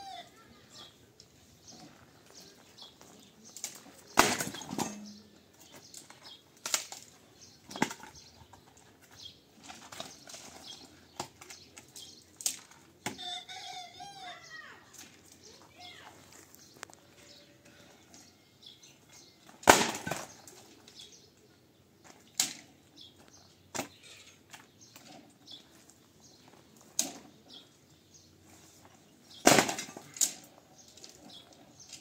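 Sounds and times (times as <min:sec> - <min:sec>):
sharp knocks and clatters: 0:04.2 - 0:05.3.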